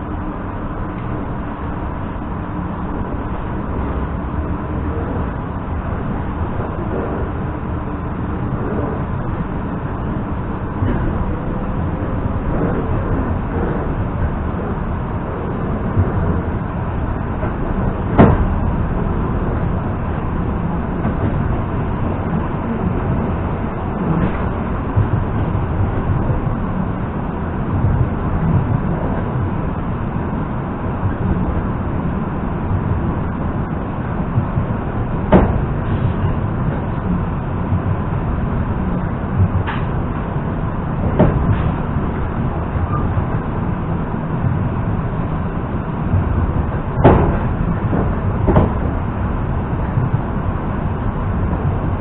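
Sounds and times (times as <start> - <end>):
faint train whine: 0.0 - 52.0
train wheels rumbling: 0.0 - 52.0
wheel knocks on track: 47.0 - 48.9.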